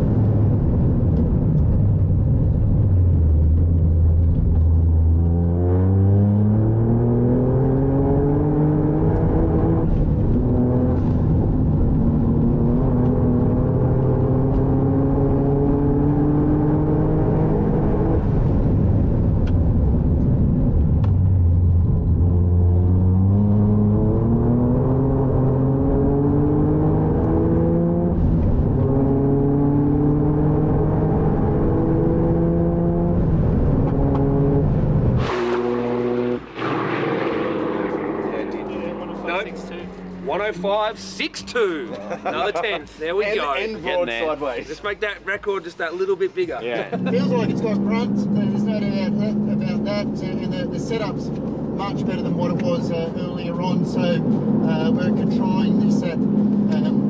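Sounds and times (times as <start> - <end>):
car engine accelerating: 0.0 - 44.5, 46.6 - 57.0.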